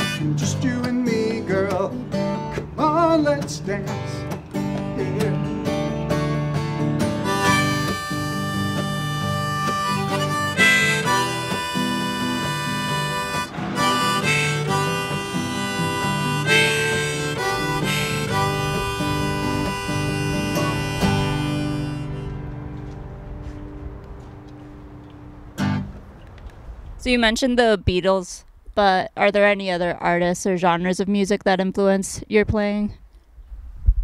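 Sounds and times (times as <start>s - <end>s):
harmonica: 0.0s - 0.7s, 6.6s - 22.6s
acoustic guitar strumming: 0.0s - 26.0s.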